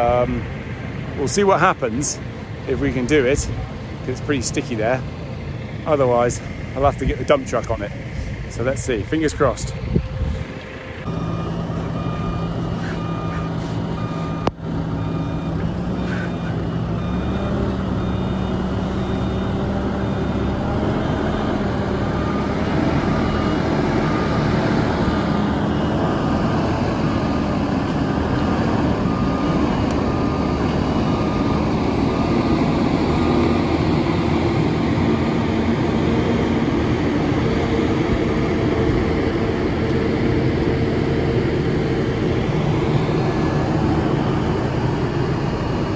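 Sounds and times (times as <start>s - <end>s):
heavy diesel engines under load: 0.0s - 45.9s
reversing alarm beeping: 10.5s - 39.8s.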